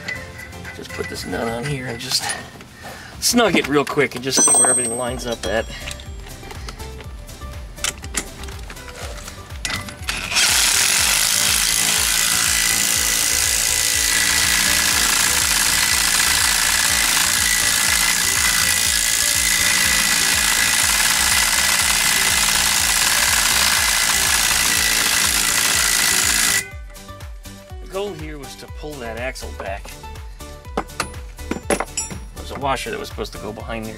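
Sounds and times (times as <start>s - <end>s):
background music with steady beat: 0.0s - 33.9s
impact wrench hammering: 4.4s - 6.0s, 9.6s - 26.7s, 30.7s - 32.3s.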